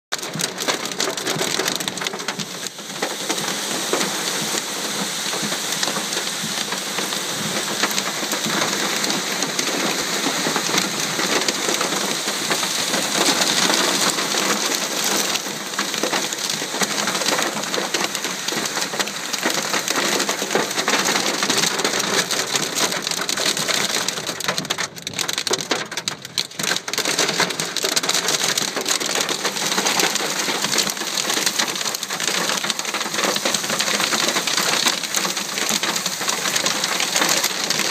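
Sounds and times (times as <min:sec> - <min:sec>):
heavy rain and hail on car roof: 0:00.1 - 0:37.9.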